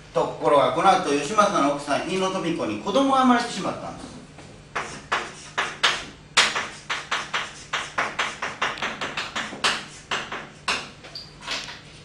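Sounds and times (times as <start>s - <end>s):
chalk tapping and scraping on blackboard: 4.7s - 11.1s.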